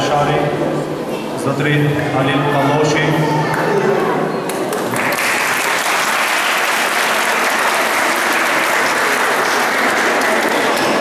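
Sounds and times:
audience applauding: 4.5s - 11.0s.

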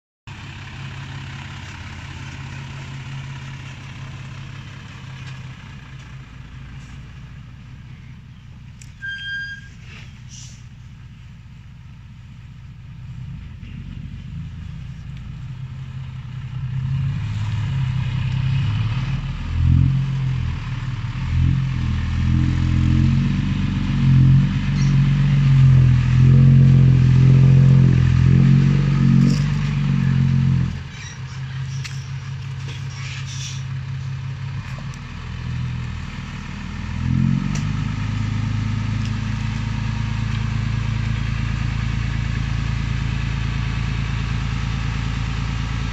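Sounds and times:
diesel truck engine revving: 13.0s - 45.9s.

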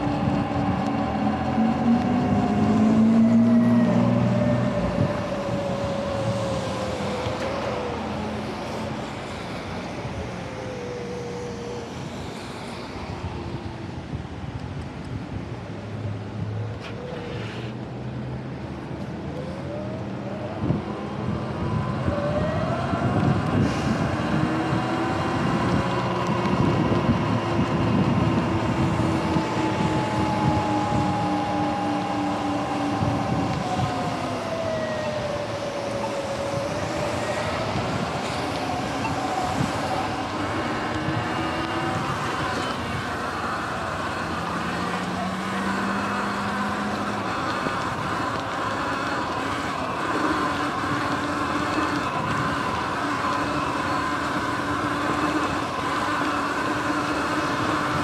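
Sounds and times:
wind and tyre noise: 0.0s - 58.0s
electric motor whine: 20.0s - 58.0s.

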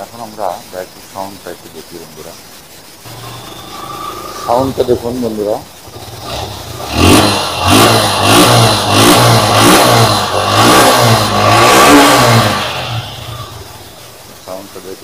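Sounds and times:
motorcycle engine revving: 3.0s - 15.0s.

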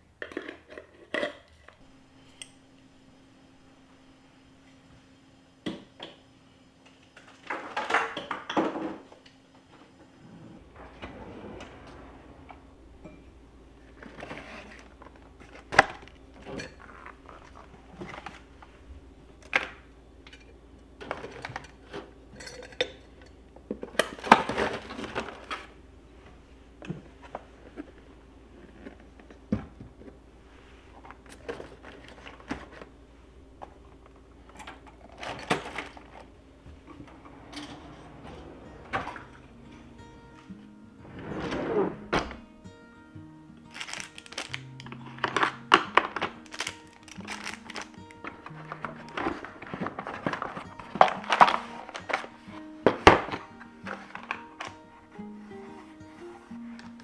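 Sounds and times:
drawer pulled open: 10.2s - 16.0s, 34.6s - 42.5s
utensils and containers clattering: 13.9s - 18.5s, 20.3s - 25.7s, 34.4s - 39.9s, 43.7s - 54.8s.

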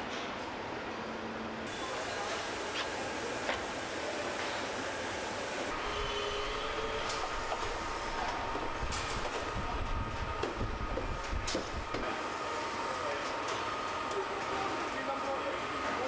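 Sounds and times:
machinery clicks and clanks: 5.6s - 12.2s
low machinery rumble: 5.7s - 12.1s.

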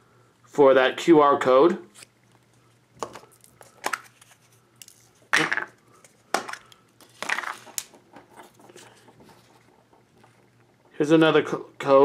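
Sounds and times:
plastic packaging crinkling: 3.0s - 5.4s, 6.1s - 9.6s.

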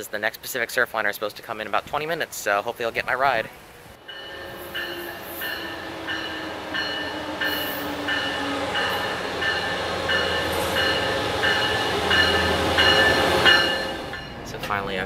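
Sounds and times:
locomotive and wheels rumbling: 3.6s - 15.0s
train bell ringing: 4.0s - 14.8s.

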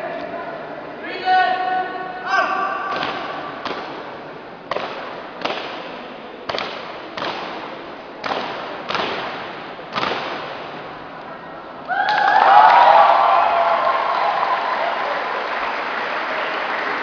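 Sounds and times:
sharp percussive hits echoing: 2.8s - 11.0s.

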